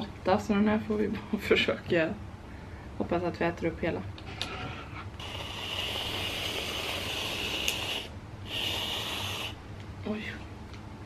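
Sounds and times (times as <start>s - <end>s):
aerosol whipped cream can hissing: 5.2s - 9.6s.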